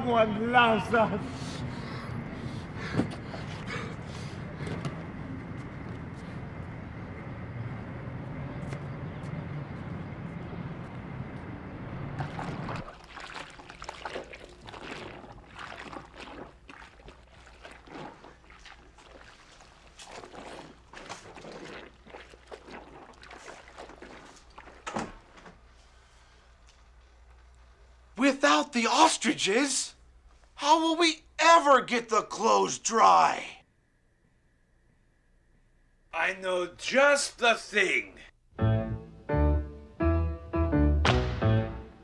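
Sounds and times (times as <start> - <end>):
city street traffic noise: 0.0 - 12.8.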